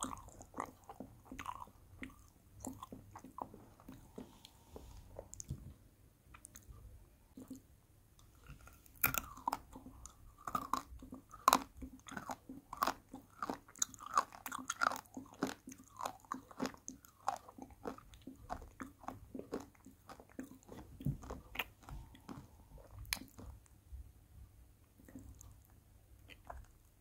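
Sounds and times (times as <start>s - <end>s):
chewing hard candy crunches: 8.4s - 23.6s.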